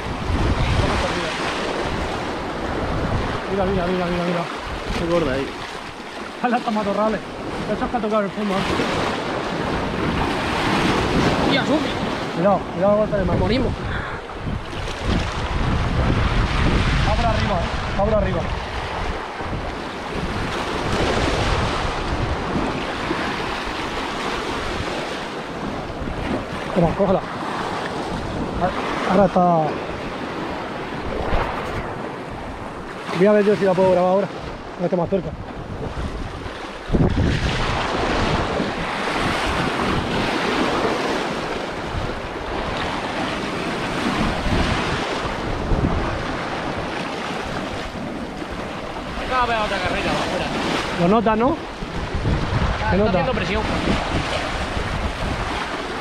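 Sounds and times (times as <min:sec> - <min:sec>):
surf washing against rocks: 0:00.0 - 0:56.0
wind buffeting microphone: 0:00.0 - 0:56.0
surf breaking on rocks: 0:35.6 - 0:56.0.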